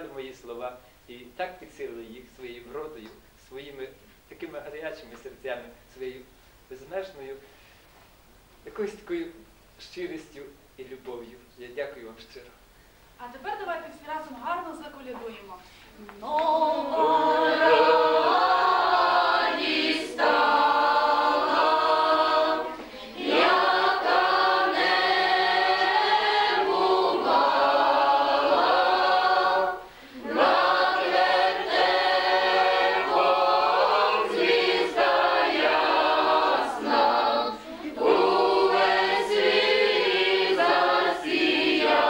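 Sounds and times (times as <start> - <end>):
group of people singing a carol: 16.2 - 42.0.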